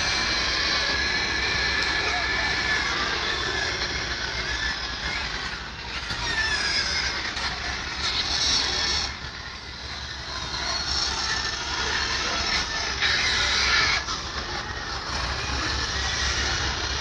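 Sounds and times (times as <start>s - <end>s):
heavy trucks rumbling: 0.0s - 17.0s.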